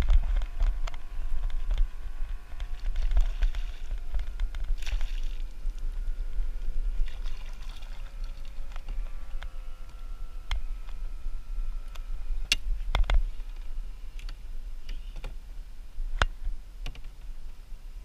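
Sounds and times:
water sloshing around kayak: 2.7s - 5.8s, 6.9s - 8.6s
rustling splash: 4.6s - 5.8s, 7.0s - 8.6s.

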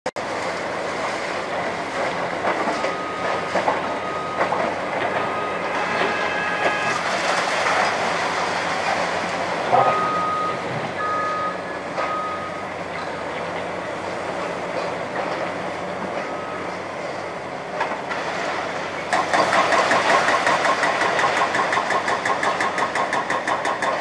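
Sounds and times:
backup alarm beeping: 2.8s - 7.0s, 9.8s - 12.6s
concrete rubble crunching and clattering: 19.1s - 24.0s.

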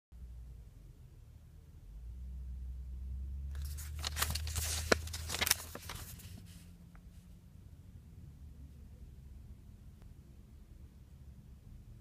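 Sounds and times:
low steady rumble: 0.2s - 12.0s
paper pages rustling: 3.5s - 6.6s.

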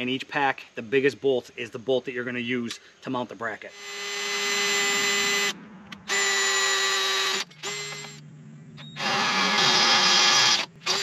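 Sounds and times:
cordless drill boring metal: 3.7s - 8.2s, 8.8s - 11.0s.

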